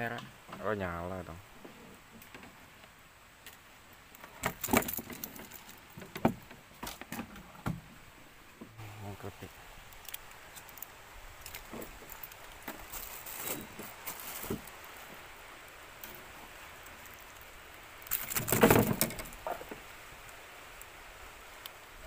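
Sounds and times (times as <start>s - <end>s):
small metallic clicks and rattles: 3.4s - 7.2s, 9.8s - 15.0s, 16.8s - 20.9s
scuffling rattle: 4.3s - 7.4s, 11.4s - 14.8s.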